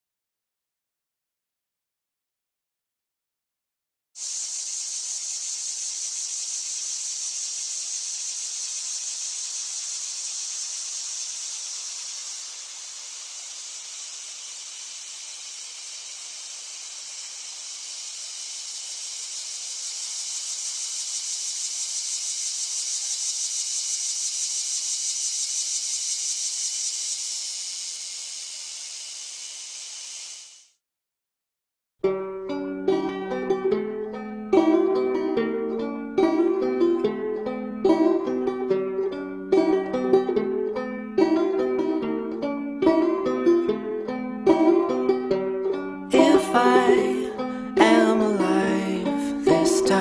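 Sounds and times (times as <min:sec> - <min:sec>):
cicadas buzzing: 0:04.2 - 0:30.8, 0:46.1 - 0:50.0.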